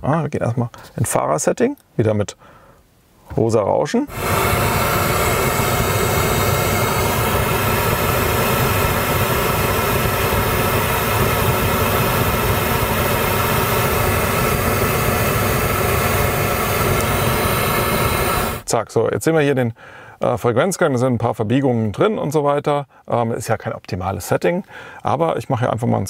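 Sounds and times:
pink noise through car speakers: 4.0s - 18.8s.

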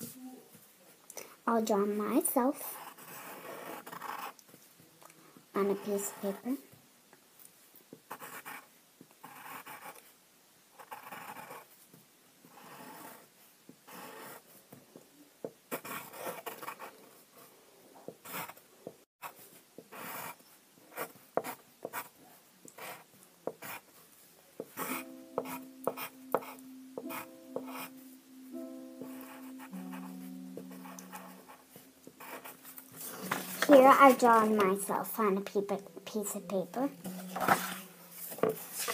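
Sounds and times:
drawing tool scratching paper: 2.7s - 4.4s, 10.8s - 11.7s, 12.5s - 13.3s, 13.9s - 14.5s, 19.2s - 22.2s
held musical notes: 24.8s - 38.9s.

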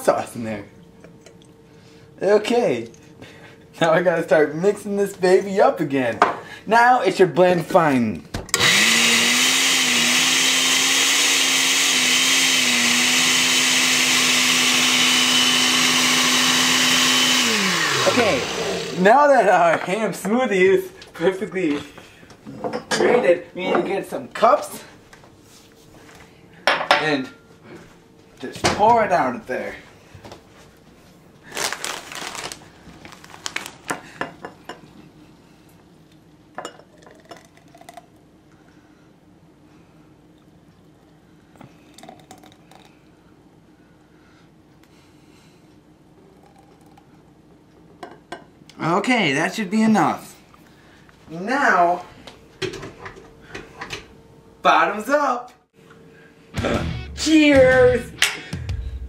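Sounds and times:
thick smoothie pouring: 8.6s - 19.0s, 31.5s - 34.0s, 37.0s - 38.1s, 41.6s - 43.0s, 46.2s - 47.2s
blender running: 8.6s - 19.1s
plastic chip bag crinkling: 31.4s - 34.0s.

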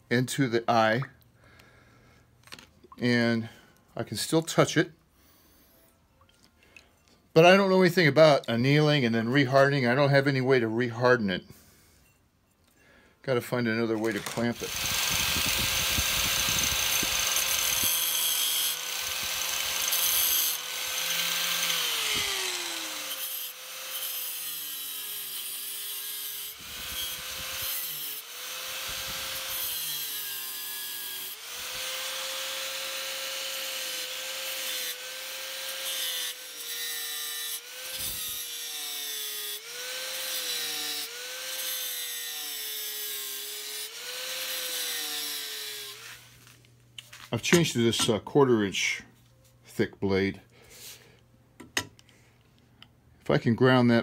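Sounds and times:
angle grinder cutting steel: 13.8s - 46.4s.

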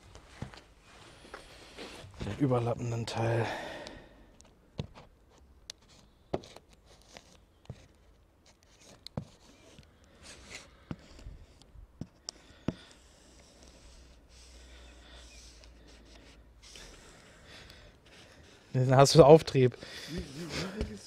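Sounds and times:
iron rubbing over film: 12.7s - 17.4s.

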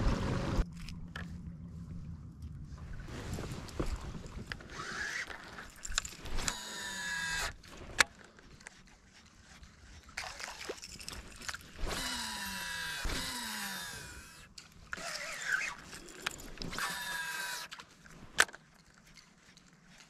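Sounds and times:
fishing reel cranking whir: 4.6s - 7.6s, 11.7s - 17.8s.

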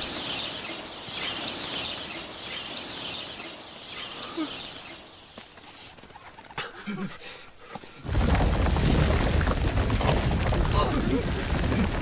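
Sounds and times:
birds chirping: 0.0s - 8.0s.

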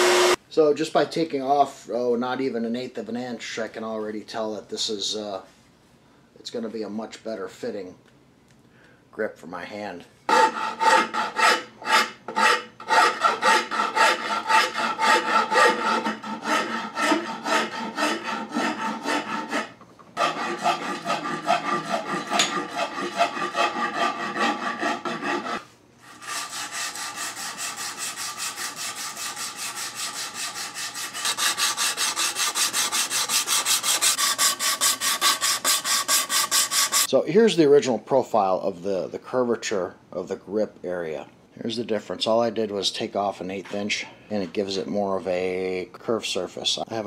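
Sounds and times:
file rasping on wood: 10.3s - 37.1s
sandpaper rubbing on wood: 26.2s - 37.1s.

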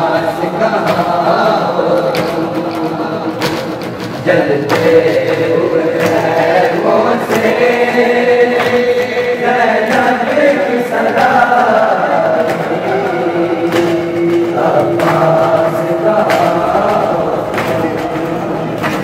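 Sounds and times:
group of voices chanting lament: 0.0s - 19.0s.

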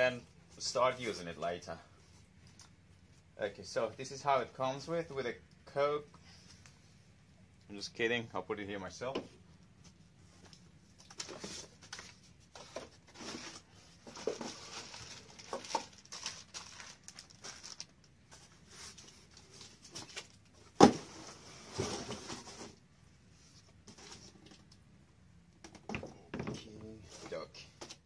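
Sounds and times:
cardboard and plastic rustling: 10.2s - 22.8s.

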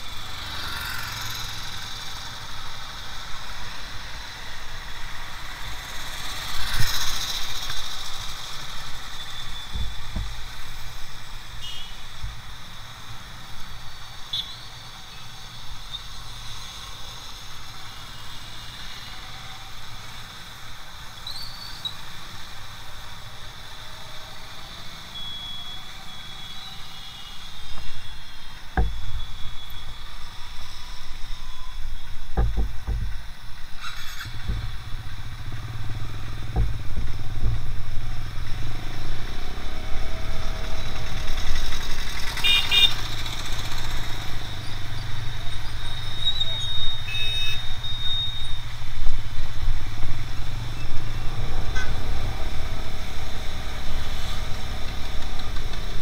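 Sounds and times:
motorcycle engine: 0.0s - 14.9s, 32.4s - 47.7s
dull knocks: 28.8s - 29.2s, 32.4s - 33.2s, 36.5s - 37.6s.

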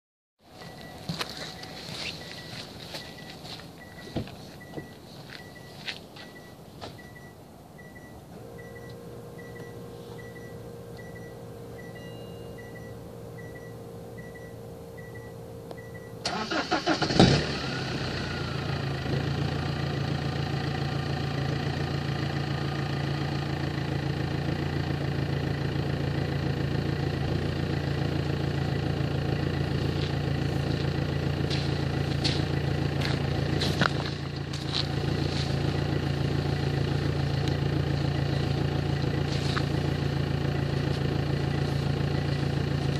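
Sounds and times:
engine idling through open exhaust: 0.4s - 42.9s
faint beep: 0.6s - 16.2s, 41.3s - 42.4s
diesel engine cranking and starting: 6.3s - 42.9s.

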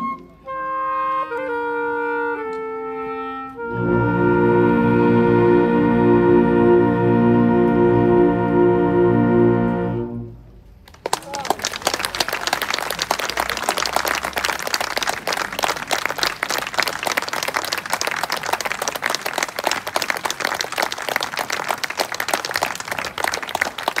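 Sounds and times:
audience applauding: 10.8s - 24.0s.

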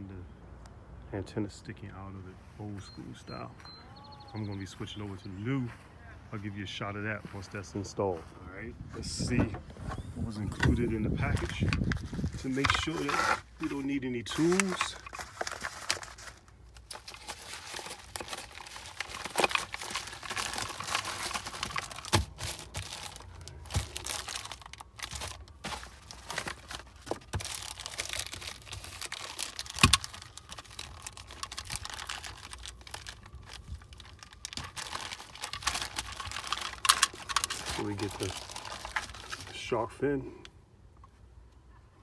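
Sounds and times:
plastic bags crinkling: 11.3s - 39.7s
paper mailer tearing: 12.3s - 39.6s.

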